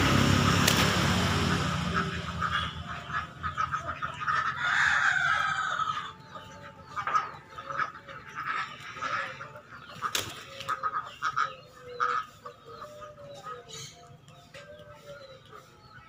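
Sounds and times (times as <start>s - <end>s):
rooster crowing: 4.4s - 6.4s.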